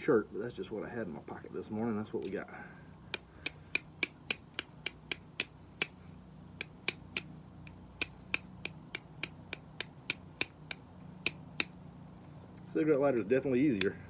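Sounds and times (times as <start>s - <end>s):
steel striker clicking on stone: 3.1s - 6.0s, 6.6s - 11.7s.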